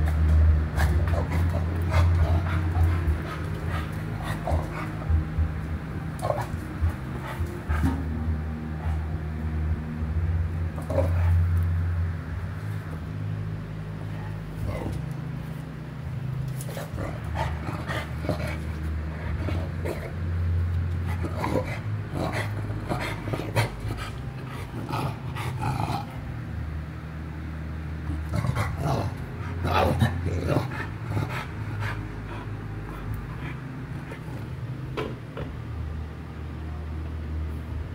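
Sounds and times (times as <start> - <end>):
dog huffing and grumbling: 0.0 - 5.5, 16.6 - 20.4, 21.0 - 26.3, 28.1 - 34.6
dog panting: 0.0 - 5.5, 6.2 - 8.2, 21.0 - 26.2, 29.4 - 34.4
low hum: 0.0 - 37.9.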